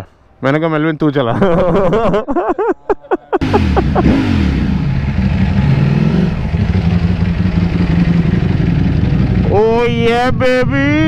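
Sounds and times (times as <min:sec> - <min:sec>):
motorcycle engine running: 0:03.4 - 0:10.2.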